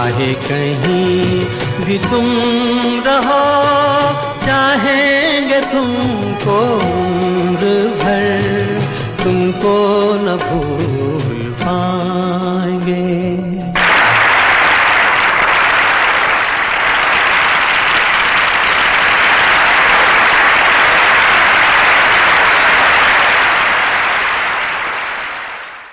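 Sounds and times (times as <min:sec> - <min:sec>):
television static hiss: 0:13.8 - 0:25.9.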